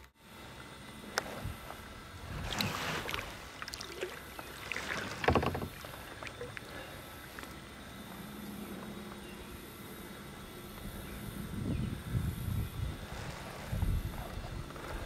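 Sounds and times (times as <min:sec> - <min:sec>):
paddle splashing in water: 0:02.2 - 0:07.6.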